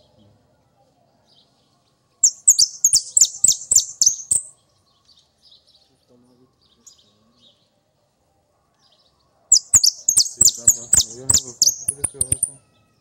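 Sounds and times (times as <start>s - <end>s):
finch singing high notes: 9.5s - 12.6s.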